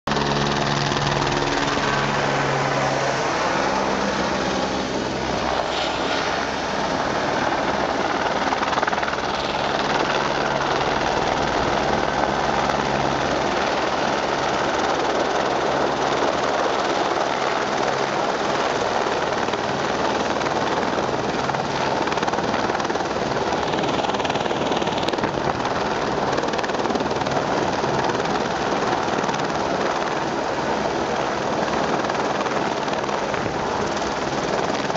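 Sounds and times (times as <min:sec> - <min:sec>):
low hum: 0:00.1 - 0:14.6
helicopter rotor and engine: 0:00.1 - 0:34.9.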